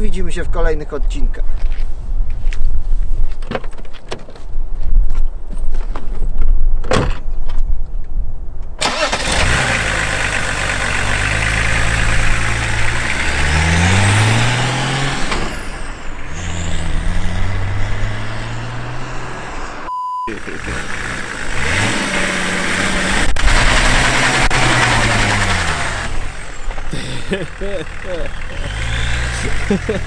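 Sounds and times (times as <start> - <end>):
car driving off: 8.8 - 30.0
diesel engine idling and revving: 8.8 - 30.0.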